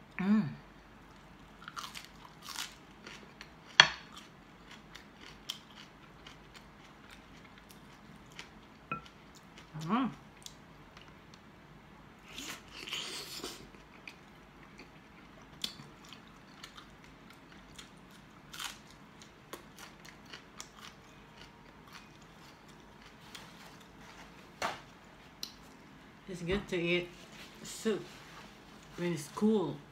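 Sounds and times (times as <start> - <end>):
person chewing food: 1.1 - 11.4, 12.3 - 24.3.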